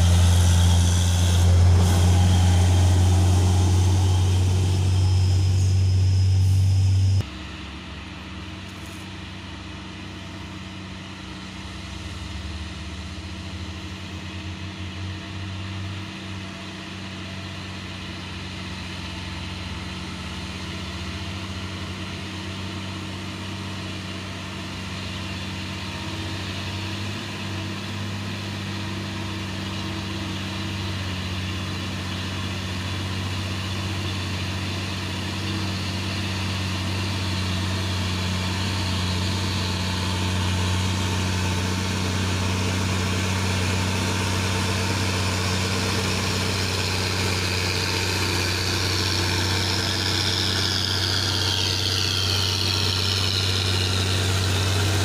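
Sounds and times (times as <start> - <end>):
tyre and road hiss: 0.0 - 7.7, 8.5 - 12.4, 23.8 - 55.0
diesel truck engine under load: 0.0 - 55.0.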